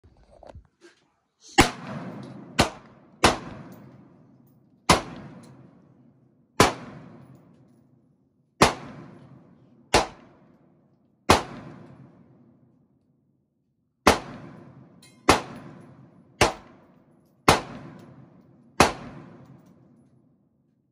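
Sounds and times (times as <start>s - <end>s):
handgun shots echoing: 1.6s - 4.2s, 4.9s - 5.8s, 6.6s - 7.6s, 8.6s - 10.6s, 11.3s - 12.1s, 14.0s - 19.9s.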